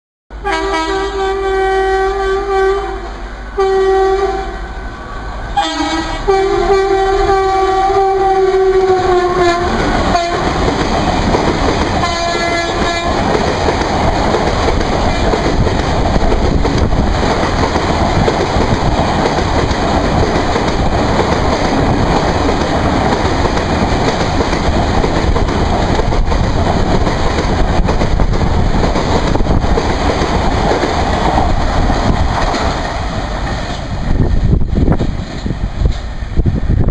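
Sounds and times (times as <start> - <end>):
locomotive horn blasts: 0.4 - 4.8, 5.5 - 10.5, 12.0 - 13.2
train coaches clattering over rails: 8.8 - 36.2.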